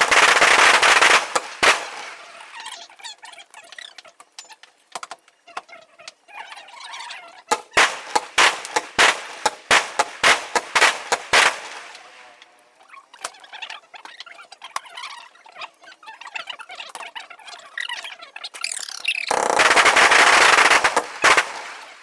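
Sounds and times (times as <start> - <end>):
fireworks loud bangs: 0.0 - 2.4, 7.5 - 12.4, 19.3 - 22.0
faint fireworks crackling: 0.0 - 6.3, 7.4 - 13.4, 19.3 - 22.0.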